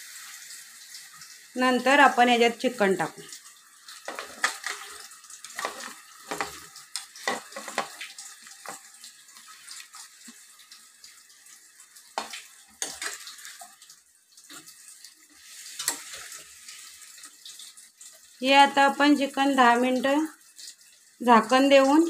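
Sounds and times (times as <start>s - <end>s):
metal spoon scraping a pan: 4.0s - 10.4s, 12.2s - 13.6s, 15.4s - 16.9s.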